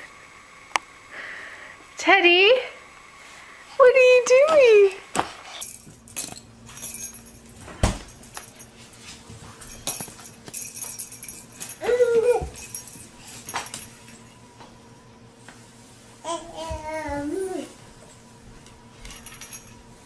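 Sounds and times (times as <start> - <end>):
toy clattering on wooden floor: 9.7 - 13.9.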